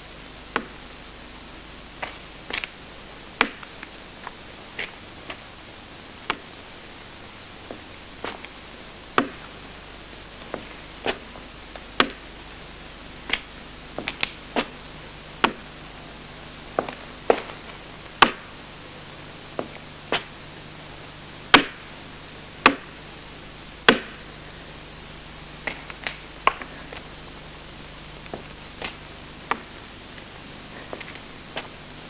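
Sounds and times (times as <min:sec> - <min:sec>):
walking stick tapping stone: 0:00.5 - 0:00.8, 0:02.0 - 0:02.8, 0:03.4 - 0:05.6, 0:06.2 - 0:06.6, 0:07.6 - 0:09.6, 0:10.4 - 0:12.4, 0:13.2 - 0:14.8, 0:15.4 - 0:15.7, 0:16.7 - 0:18.6, 0:19.5 - 0:20.4, 0:21.5 - 0:21.9, 0:22.6 - 0:23.0, 0:23.9 - 0:24.3, 0:25.6 - 0:27.1, 0:28.2 - 0:31.8.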